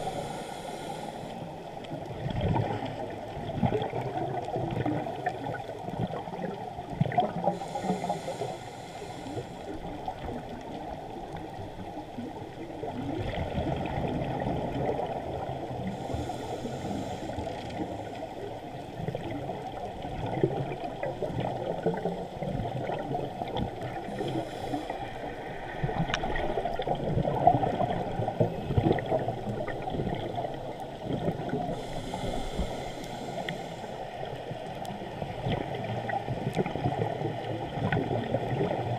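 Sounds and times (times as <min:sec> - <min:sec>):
scuba regulator breaths bubbling: 0:00.0 - 0:01.5, 0:07.1 - 0:10.3, 0:15.8 - 0:18.1, 0:22.6 - 0:30.3, 0:31.0 - 0:34.4
muffled underwater sound: 0:00.0 - 0:38.9.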